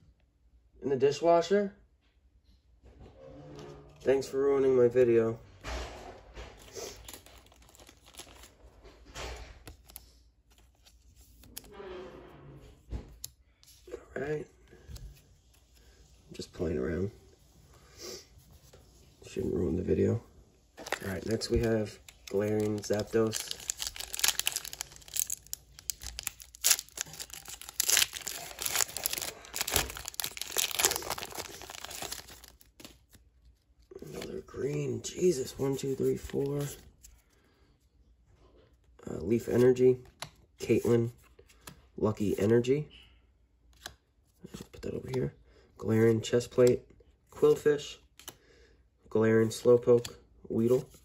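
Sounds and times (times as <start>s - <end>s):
cards rustling: 6.6s - 11.7s, 20.8s - 37.4s
foil wrapper crinkling: 20.8s - 33.1s.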